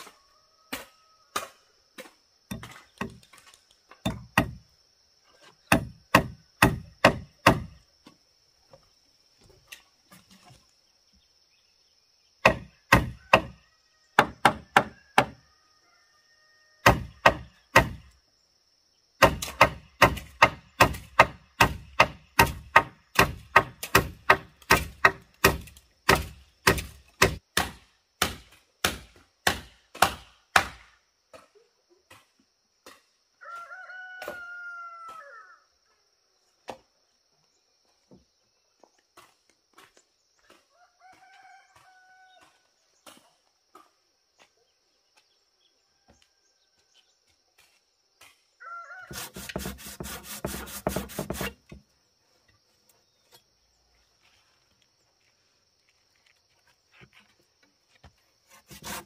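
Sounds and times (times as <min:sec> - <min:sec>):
hammer driving nails into wood: 0:05.7 - 0:07.7.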